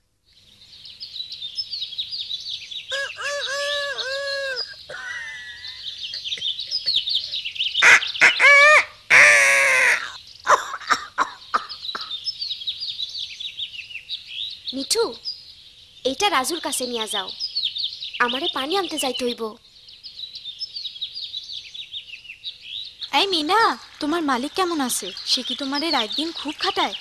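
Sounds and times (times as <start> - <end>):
small birds chirping: 0.0 - 27.0
parrot squawk: 2.9 - 5.0, 7.8 - 10.2
cartoon parrot calling: 2.9 - 6.5, 7.8 - 12.1.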